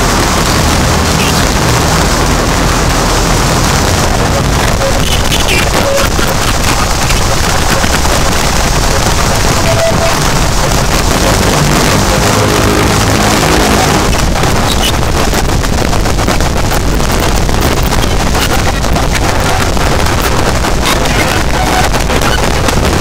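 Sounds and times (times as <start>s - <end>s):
distorted static noise music: 0.0s - 23.0s
low buzzing tone: 7.8s - 19.8s.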